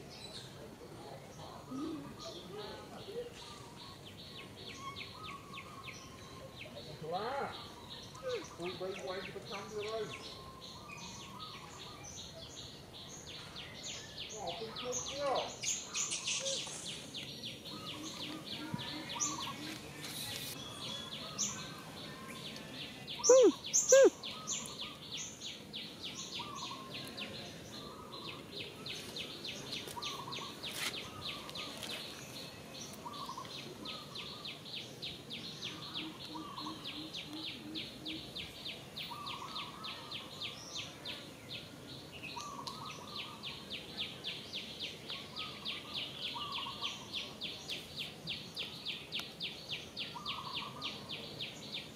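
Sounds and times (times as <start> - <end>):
birds chirping: 0.0 - 51.9
loud rising and falling calls: 23.2 - 24.2.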